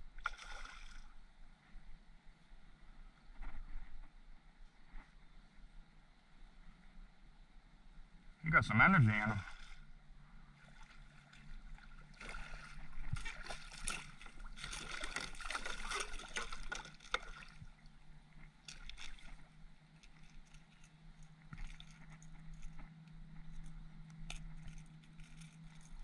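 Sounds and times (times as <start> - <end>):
water sloshing: 0.2 - 1.1, 9.2 - 9.9, 10.5 - 22.9
fish thrashing and splashing: 10.6 - 17.8, 18.6 - 22.8.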